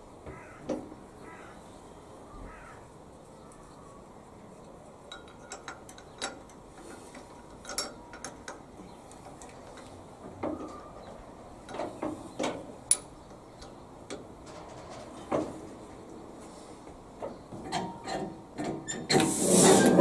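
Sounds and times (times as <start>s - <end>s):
metal clicks and knocks: 5.1s - 10.8s, 11.7s - 15.8s.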